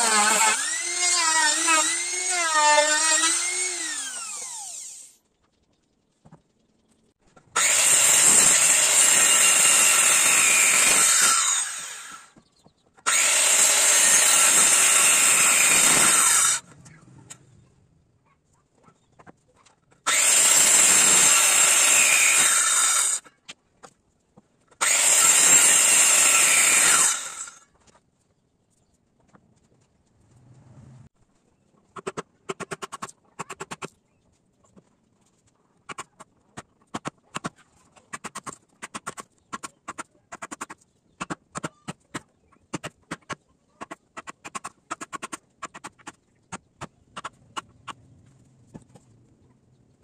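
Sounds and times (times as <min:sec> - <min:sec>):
circular saw cutting wood: 0:00.0 - 0:05.2, 0:07.5 - 0:12.4, 0:13.1 - 0:16.7, 0:20.1 - 0:23.2, 0:24.8 - 0:27.7
trimmer router spinning down: 0:00.0 - 0:05.2.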